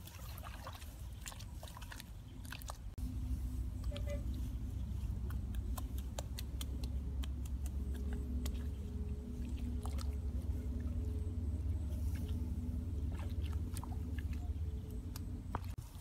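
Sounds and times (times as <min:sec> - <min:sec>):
wet clicks and splashes in mud: 0:00.0 - 0:03.0, 0:05.1 - 0:11.0, 0:13.0 - 0:16.0
steady low rumble: 0:02.3 - 0:16.0.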